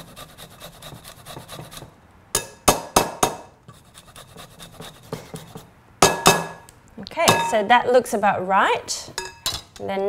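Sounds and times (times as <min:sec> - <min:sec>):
ginger grating on grater: 0:00.0 - 0:01.9.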